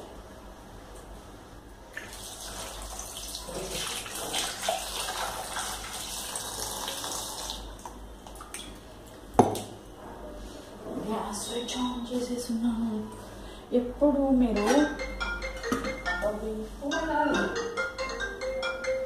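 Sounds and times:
water running from a tap: 2.0s - 8.5s.

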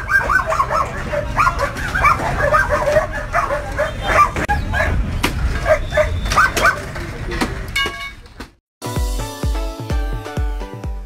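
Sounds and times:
dog yipping and yelping: 0.0s - 5.0s, 5.6s - 6.9s
street rumble: 0.0s - 8.6s.

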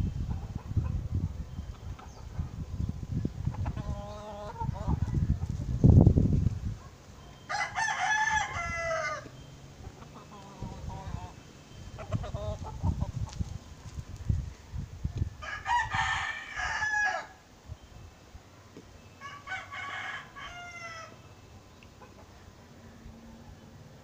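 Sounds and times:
rooster crowing: 7.5s - 9.3s, 15.4s - 17.4s, 19.2s - 21.2s.

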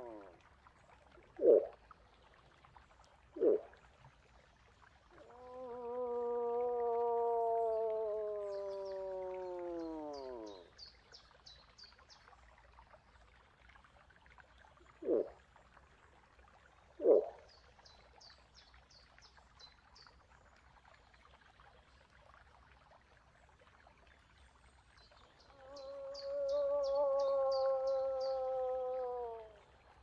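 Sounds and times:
moose call: 25.5s - 29.6s.

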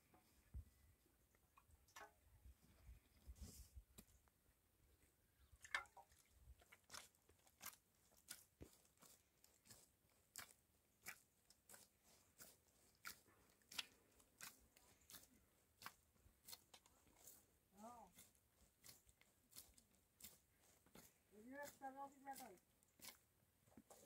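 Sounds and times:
footsteps crunching on ground: 6.9s - 24.0s.

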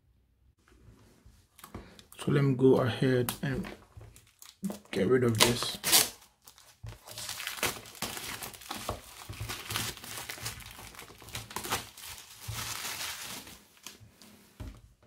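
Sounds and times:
plastic wrap crinkling and tearing: 3.3s - 14.0s.

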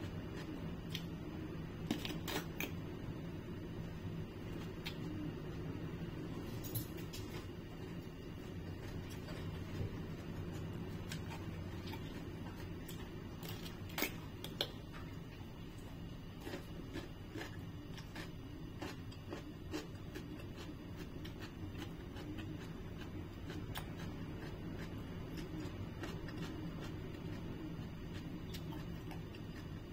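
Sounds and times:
low room hum: 0.0s - 29.9s
cucumber crunching: 16.4s - 22.4s.

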